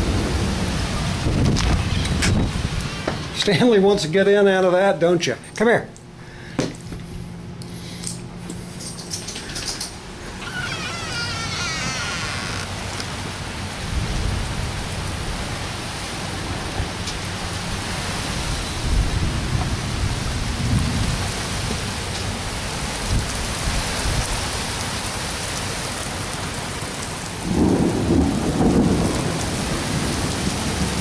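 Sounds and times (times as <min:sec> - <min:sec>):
thunder rumbling: 0:00.0 - 0:03.3, 0:12.7 - 0:21.9, 0:27.4 - 0:31.0
heavy rain pouring: 0:00.0 - 0:04.0, 0:09.4 - 0:31.0.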